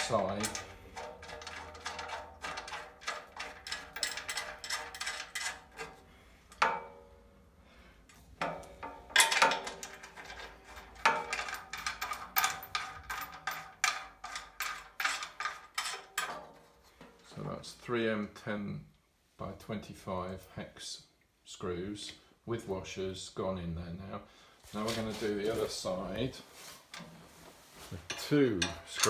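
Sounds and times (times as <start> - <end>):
metal bolts clicking on bracket: 0.0 - 7.0, 8.1 - 17.5, 28.1 - 29.0.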